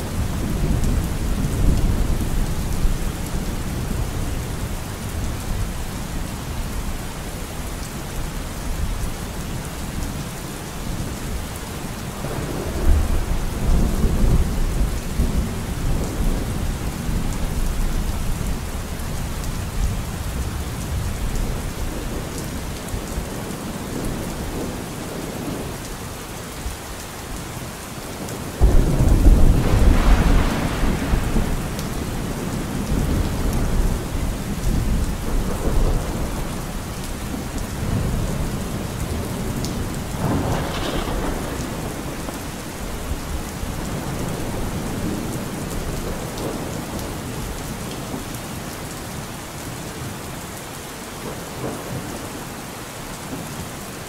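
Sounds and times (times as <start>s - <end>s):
steady rain: 0.0s - 54.0s
rolling thunder: 12.2s - 18.2s, 28.6s - 47.2s.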